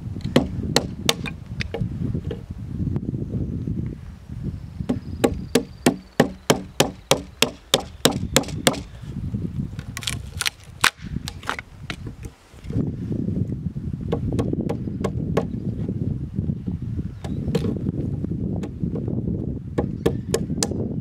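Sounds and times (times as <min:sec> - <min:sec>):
wood splitting: 0:00.2 - 0:01.8, 0:04.9 - 0:08.9, 0:09.8 - 0:12.1
chisel struck into wood: 0:00.3 - 0:01.4, 0:04.9 - 0:08.9.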